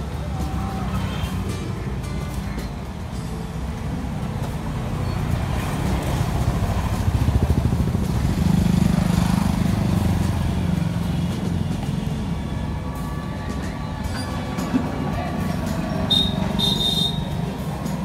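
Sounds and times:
vehicle engine running: 3.9s - 18.0s.

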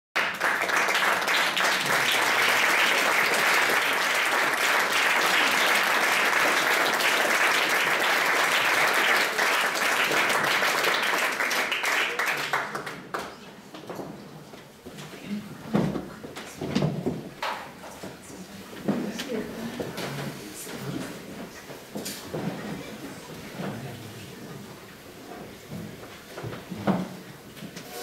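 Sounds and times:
audience applauding: 0.2s - 13.5s.

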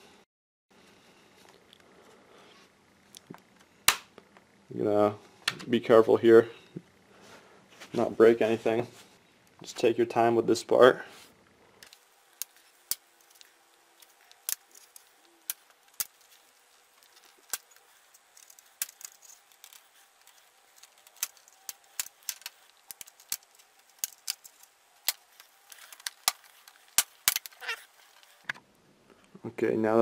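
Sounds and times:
plastic clips snapping: 11.8s - 28.6s.

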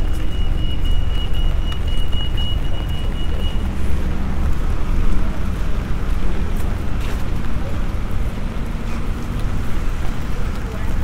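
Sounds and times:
pedestrian crossing beep: 0.0s - 4.2s
bus engine rumble: 0.0s - 11.0s
tyres hissing on wet road: 2.5s - 11.0s.

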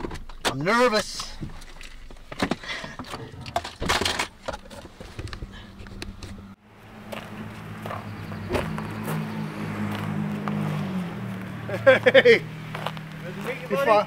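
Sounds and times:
camera handling knocks and rustles: 1.4s - 6.5s.

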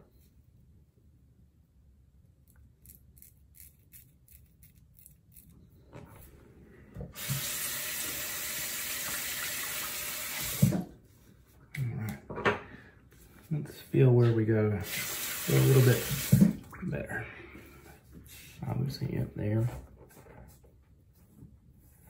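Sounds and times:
sink tap running: 7.1s - 10.9s, 14.8s - 16.6s.

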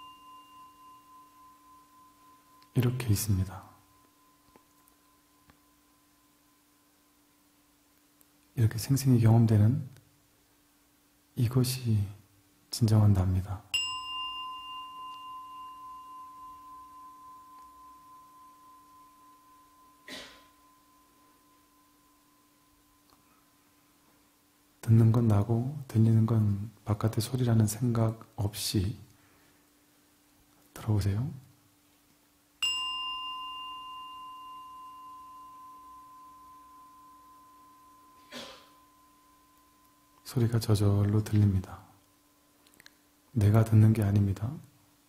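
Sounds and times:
singing bowl ringing: 0.0s - 7.3s, 13.7s - 23.9s, 32.6s - 41.3s.

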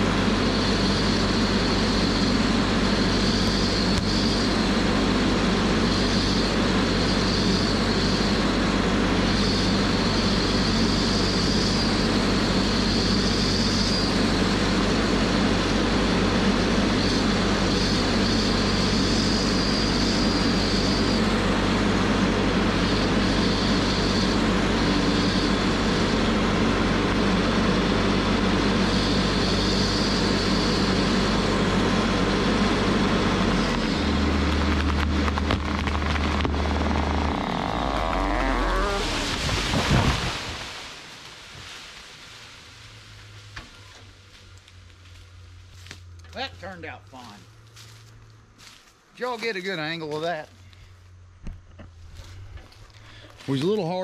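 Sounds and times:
diesel engine under load: 0.0s - 49.1s, 50.3s - 54.0s
branches crackling: 33.7s - 46.3s
tree crashing to ground: 34.4s - 43.8s.

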